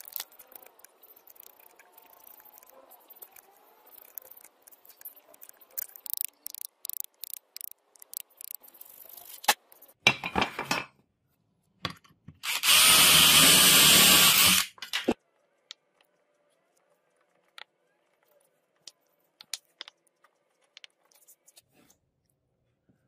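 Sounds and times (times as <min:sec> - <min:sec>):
power tool running: 0:12.4 - 0:14.7.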